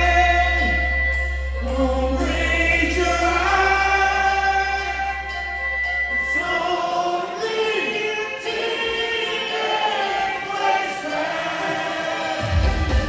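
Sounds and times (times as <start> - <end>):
man singing into a microphone: 0.0 - 5.4, 6.2 - 10.9
soft sustained backing music: 0.0 - 13.0.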